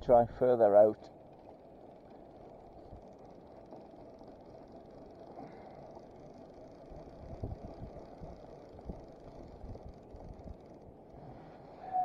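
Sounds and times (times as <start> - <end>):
wind on microphone: 7.2 - 10.6.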